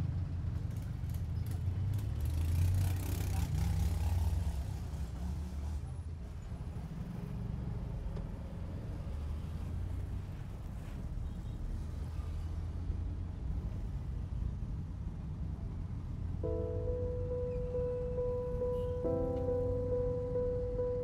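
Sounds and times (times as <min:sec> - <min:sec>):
street traffic: 0:00.0 - 0:21.0
van engine running: 0:16.2 - 0:21.0.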